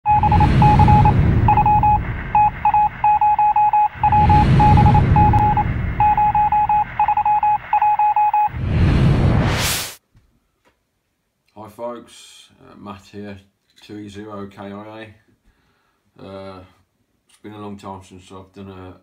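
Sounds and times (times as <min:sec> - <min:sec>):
morse code beeps: 0:00.0 - 0:08.6
low rushing sound effect: 0:00.1 - 0:07.6, 0:08.2 - 0:10.0.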